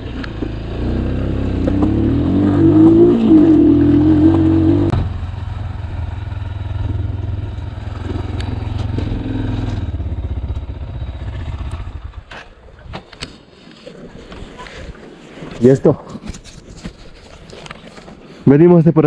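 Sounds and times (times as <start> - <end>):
motorcycle engine: 0.0 - 12.5.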